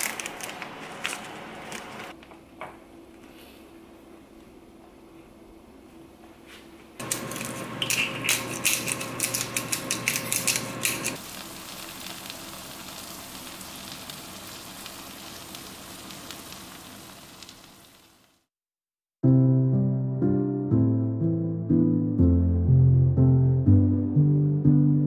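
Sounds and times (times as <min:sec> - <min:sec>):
food frying in a pan: 0:07.0 - 0:18.5.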